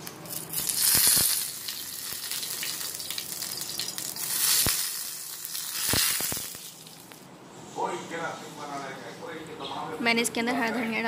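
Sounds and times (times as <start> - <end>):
hot oil sizzling and spitting: 0.0 - 7.2.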